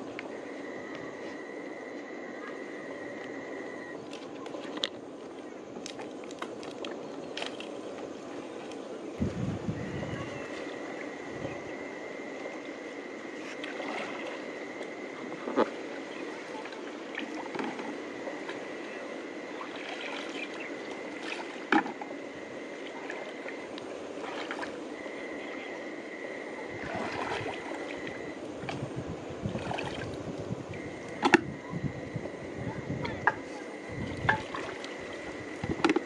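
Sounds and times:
high-pitched whine: 0.0s - 4.5s, 9.1s - 29.3s, 30.0s - 36.0s
water sloshing around legs: 3.8s - 9.1s, 12.3s - 25.8s, 26.5s - 28.8s, 29.4s - 31.3s, 33.0s - 36.0s.

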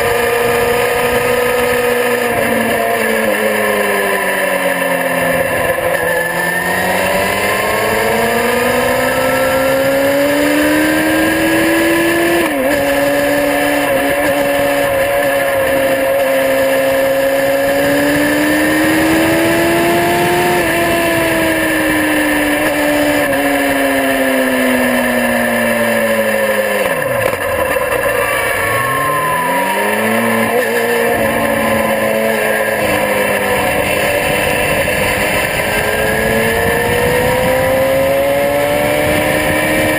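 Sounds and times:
motorcycle engine revving: 0.0s - 39.9s
wind rushing over microphone: 6.7s - 23.6s, 28.7s - 39.9s.

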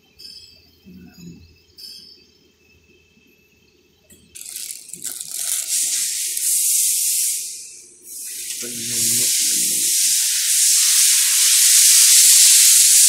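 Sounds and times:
loud rushing hiss: 4.4s - 13.0s.

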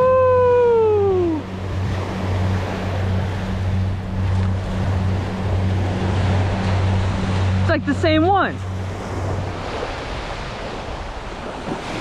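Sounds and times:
steady low hum: 0.0s - 11.7s
wind on microphone: 0.0s - 12.0s
small waves breaking on sand: 4.2s - 12.0s.

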